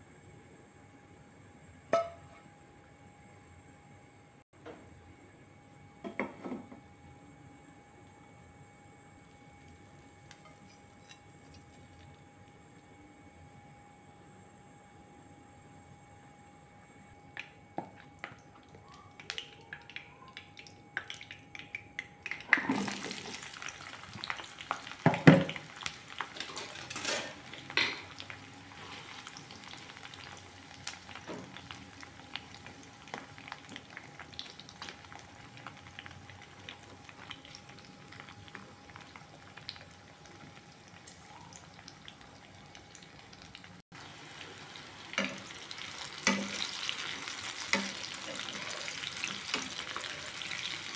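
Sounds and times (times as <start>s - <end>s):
vegetables sizzling in oil: 22.4s - 50.9s
metal tongs clacking on pan: 46.3s - 46.6s.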